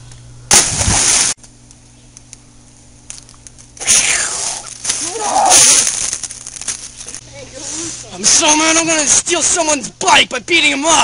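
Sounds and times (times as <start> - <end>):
faint steady hum: 0.0 - 11.0
person crying out: 3.8 - 5.8.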